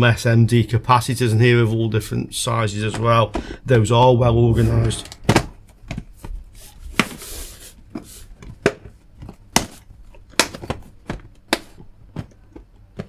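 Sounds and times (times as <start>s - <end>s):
plastic box clicks and knocks: 8.4s - 13.0s.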